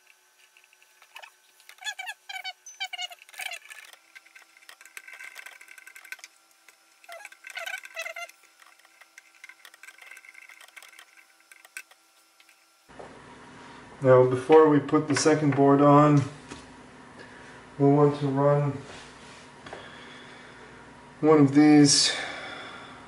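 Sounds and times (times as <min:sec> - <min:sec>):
faint steady hum: 0:00.0 - 0:23.0
screwdriver squeaks and clicks: 0:01.1 - 0:06.3, 0:07.0 - 0:12.0.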